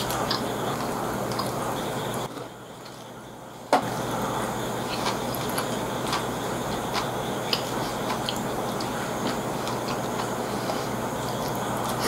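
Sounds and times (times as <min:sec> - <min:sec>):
chewing smacks: 0:00.0 - 0:01.6, 0:04.8 - 0:12.0.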